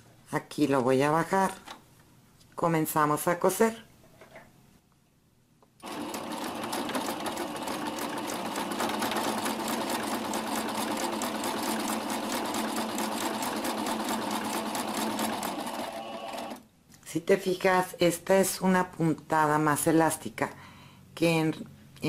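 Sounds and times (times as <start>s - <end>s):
sewing machine running: 5.8s - 16.6s.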